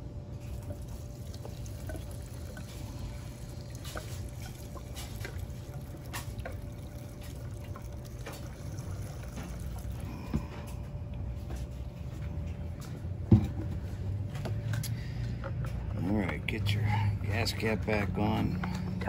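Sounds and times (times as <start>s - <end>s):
fuel pouring into plastic tank: 0.3s - 12.1s.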